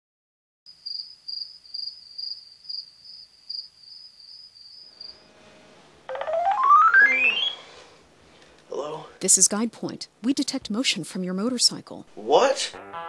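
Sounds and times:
crickets chirping: 0:00.7 - 0:05.4
rising electronic phone alert: 0:06.1 - 0:07.8.

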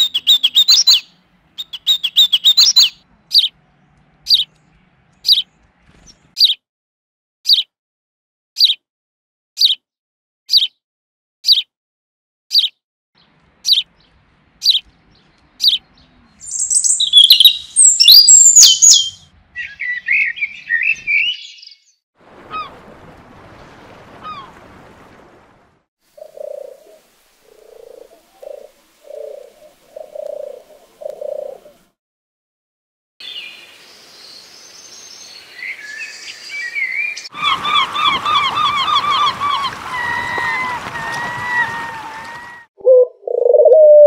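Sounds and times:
birds twittering song: 0:00.0 - 0:06.6, 0:07.5 - 0:07.7, 0:08.6 - 0:08.8, 0:09.6 - 0:09.8, 0:10.5 - 0:10.8, 0:11.5 - 0:11.7, 0:12.5 - 0:22.0, 0:33.2 - 0:42.5
doves cooing: 0:26.2 - 0:31.9, 0:37.4 - 0:44.0.

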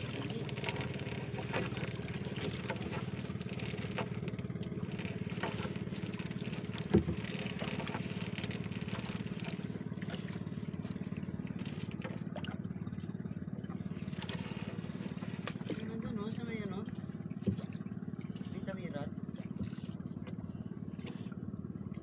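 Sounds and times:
fishing net rustling: 0:00.0 - 0:10.3
small boat engine running: 0:00.0 - 0:22.0.

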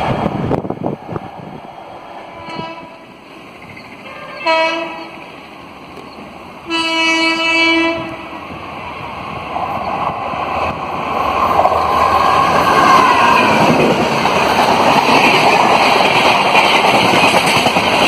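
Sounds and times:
locomotive horn blasts: 0:02.3 - 0:03.0, 0:04.1 - 0:05.1, 0:06.7 - 0:08.3.

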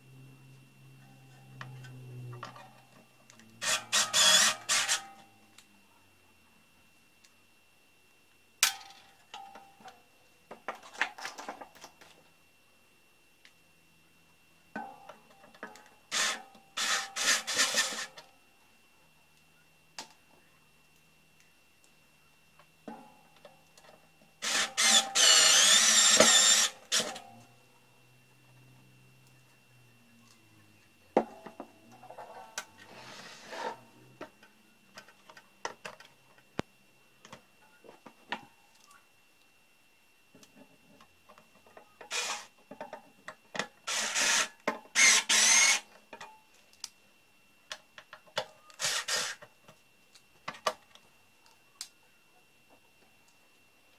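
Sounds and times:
drill grinding into metal: 0:03.6 - 0:05.2, 0:16.1 - 0:18.1, 0:24.4 - 0:27.2, 0:42.1 - 0:42.5, 0:43.9 - 0:45.9, 0:48.8 - 0:49.4.

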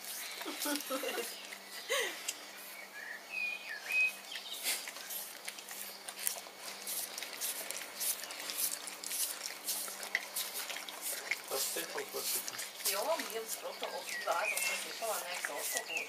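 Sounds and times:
dog licking and slurping: 0:04.4 - 0:16.0.

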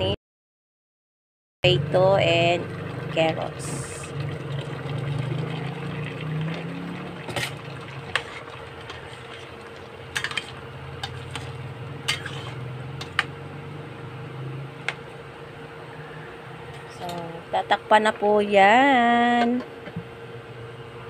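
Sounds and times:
steady low hum: 0:01.6 - 0:21.0
wet stirring in a pot: 0:02.7 - 0:13.4.

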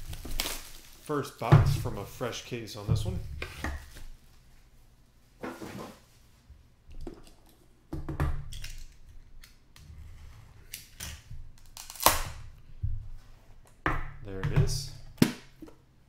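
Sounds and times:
cutter slitting tape: 0:10.7 - 0:12.4.

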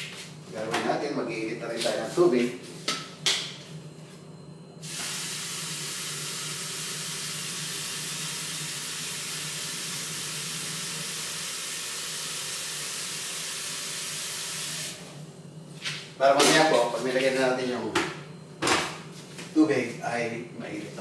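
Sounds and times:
tap water running: 0:04.8 - 0:15.0.

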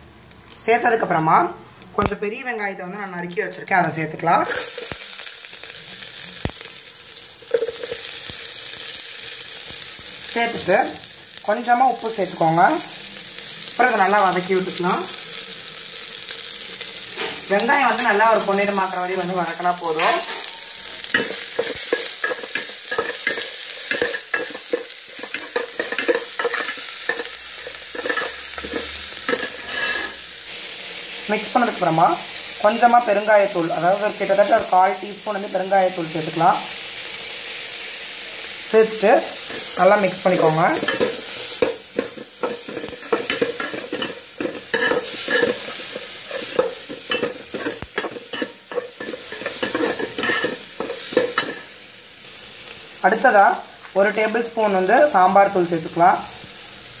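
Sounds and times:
onions sizzling in hot oil: 0:00.0 - 0:57.0
metal spoon scraping pot: 0:20.0 - 0:30.2, 0:40.8 - 0:51.7.

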